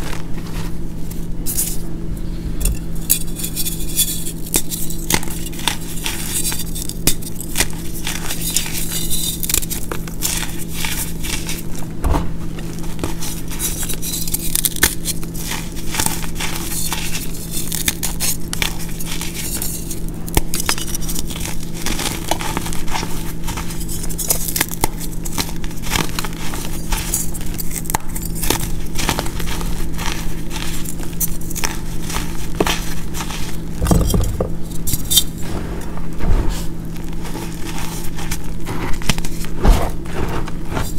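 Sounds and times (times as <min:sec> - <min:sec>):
low hum: 0:02.0 - 0:03.8, 0:33.8 - 0:37.4
chalk blocks crunching: 0:20.6 - 0:35.2.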